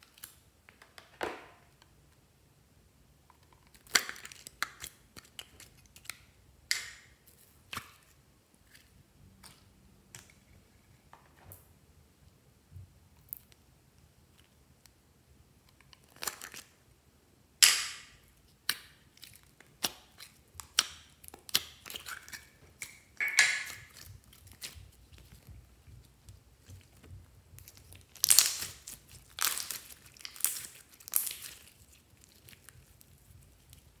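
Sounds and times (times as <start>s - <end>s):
slime squishing between fingers: 18.4s - 34.0s.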